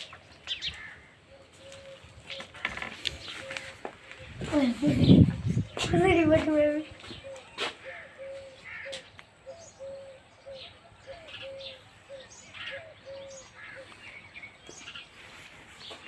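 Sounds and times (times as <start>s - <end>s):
small birds chirping: 0.0s - 16.0s
dove cooing: 1.3s - 5.7s, 7.0s - 14.0s.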